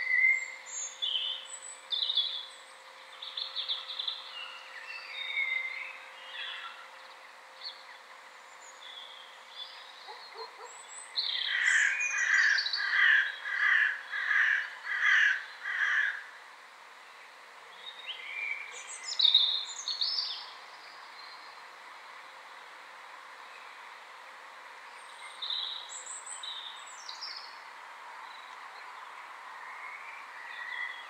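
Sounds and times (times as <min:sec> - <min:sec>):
bird calling: 0:08.9 - 0:16.3.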